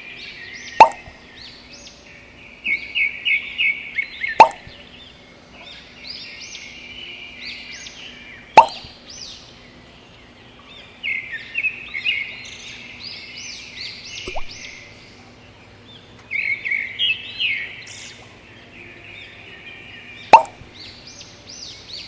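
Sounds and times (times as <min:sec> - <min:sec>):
small birds chirping: 0:00.0 - 0:22.0
sharp knock: 0:00.8 - 0:01.1, 0:08.6 - 0:08.9, 0:20.4 - 0:20.6.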